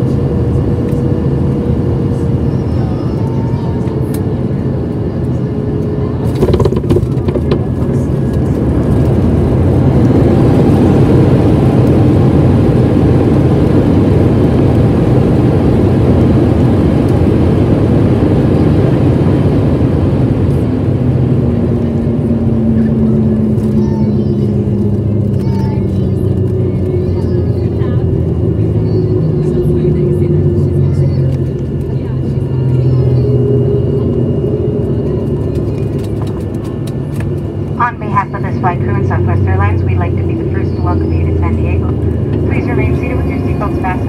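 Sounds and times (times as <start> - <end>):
jet engines roaring: 0.0 - 44.0
steady low hum: 0.0 - 44.0.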